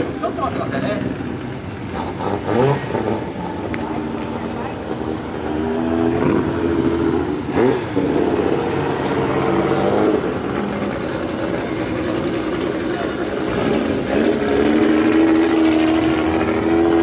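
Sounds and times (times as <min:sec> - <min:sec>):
old car engines running: 0:00.0 - 0:17.0.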